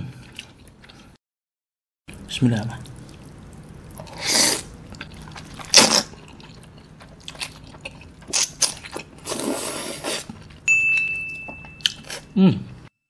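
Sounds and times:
wet chewing: 2.1 - 12.8
person slurping noodles: 4.0 - 6.5, 8.3 - 10.5.

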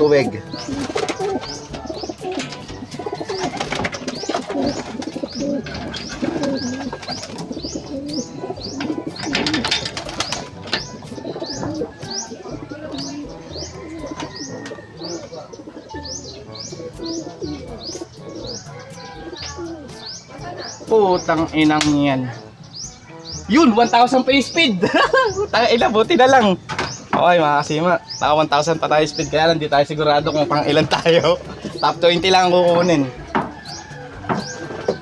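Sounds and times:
pigeons cooing: 0.0 - 35.0
wings flapping: 0.5 - 12.4
clattering against wooden boxes: 0.6 - 8.1, 8.7 - 12.3, 13.8 - 15.2, 32.9 - 35.0.

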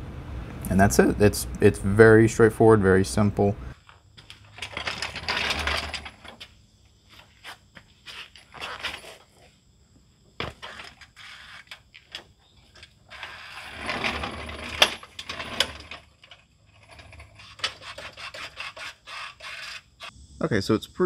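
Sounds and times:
metal scraping and rattling: 4.2 - 6.5, 10.4 - 20.1.

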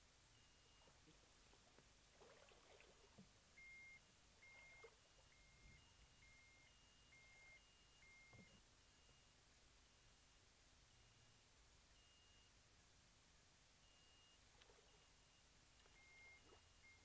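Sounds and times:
short electronic beeps: 3.6 - 9.2, 13.9 - 17.0.

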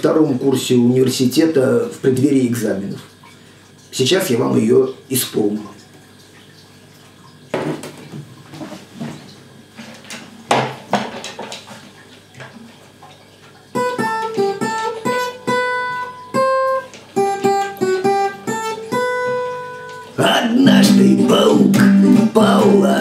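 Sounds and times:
guitar handling knocks and rustling: 7.5 - 12.7, 13.8 - 20.2
acoustic guitar strummed chords: 13.8 - 23.0.

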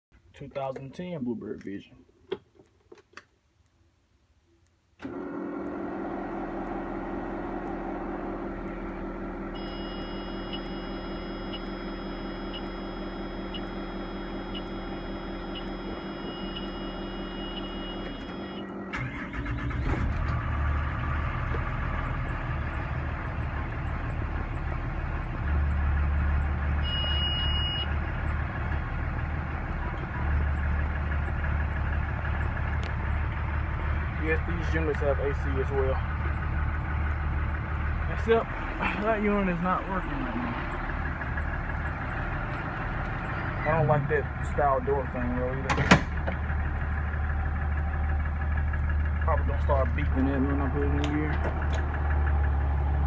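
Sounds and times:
diesel engine cranking and idling: 4.9 - 53.0
high electronic warning tone: 9.5 - 18.7.

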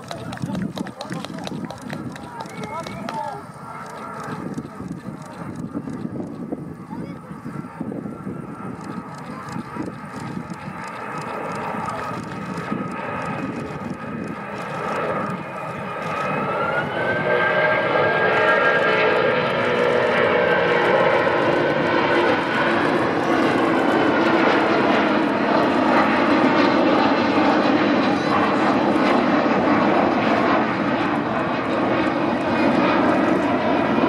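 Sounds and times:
jet engines roaring: 0.0 - 34.0
engine whine rising: 10.5 - 25.4.

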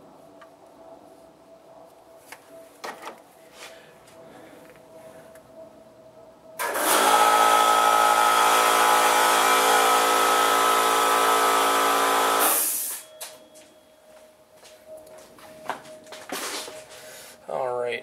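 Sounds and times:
electric motor running: 6.6 - 12.7.

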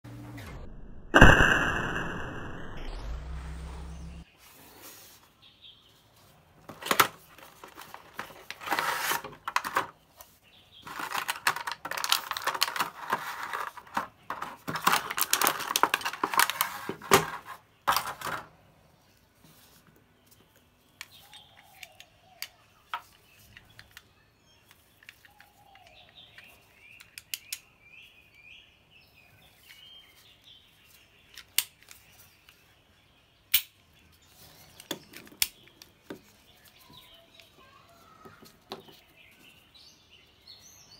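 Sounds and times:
rustling of box and packaging: 4.3 - 21.8
sharp clicks of small hard parts: 21.0 - 27.7, 31.3 - 32.6, 33.5 - 33.8, 34.8 - 36.0.

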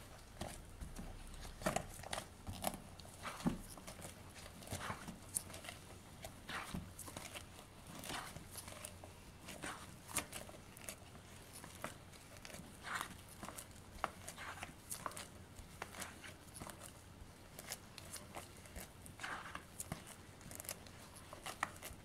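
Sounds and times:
plastic album pages rustling: 0.0 - 22.0.

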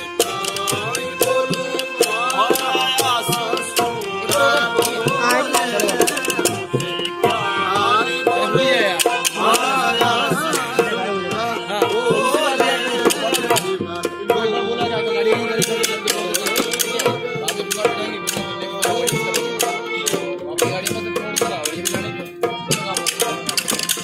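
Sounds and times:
hand drum strokes: 0.0 - 11.5, 15.3 - 24.0
harmonium chords: 0.0 - 24.0
man singing: 0.0 - 24.0
wooden clappers clicking: 0.2 - 7.2, 15.6 - 22.1, 22.7 - 24.0.

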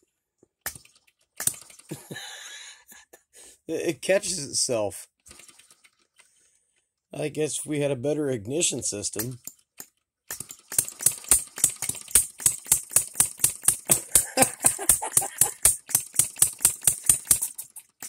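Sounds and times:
small engine clicking rapidly: 0.6 - 2.0, 5.2 - 6.2, 9.2 - 18.0.

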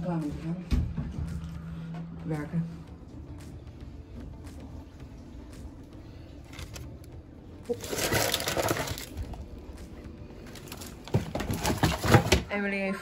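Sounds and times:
cardboard box crinkling and crunching: 7.7 - 9.2.

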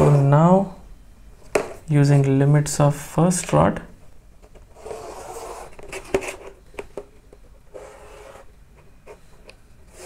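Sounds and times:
chalk scraping on a chalkboard: 4.8 - 5.7, 7.8 - 8.5.

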